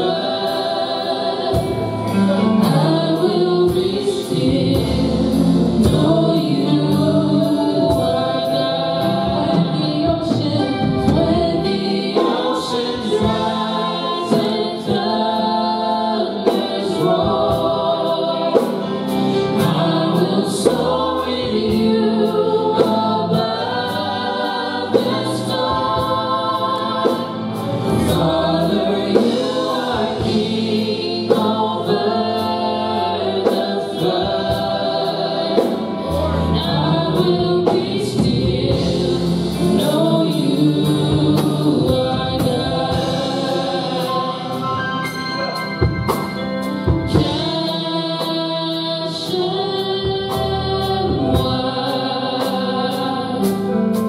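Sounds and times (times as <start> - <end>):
live band accompaniment: 0.0 - 54.0
worship team singing in harmony: 0.0 - 54.0
sharp percussion hits: 44.9 - 47.6.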